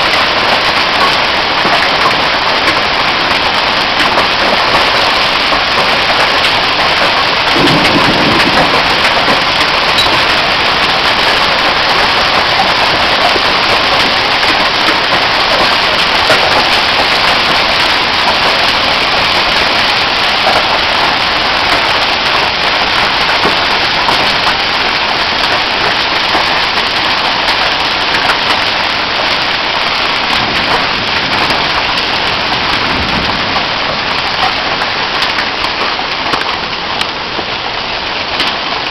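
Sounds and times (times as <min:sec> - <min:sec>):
hail ticks: 0:00.0 - 0:38.9
heavy rain and hail: 0:00.0 - 0:38.9.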